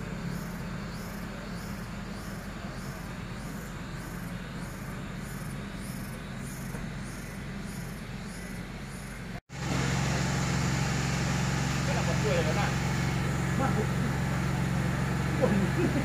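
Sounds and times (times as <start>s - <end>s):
insects chirping: 0.0s - 9.4s, 11.8s - 16.0s
train engine idling hum: 0.0s - 16.0s.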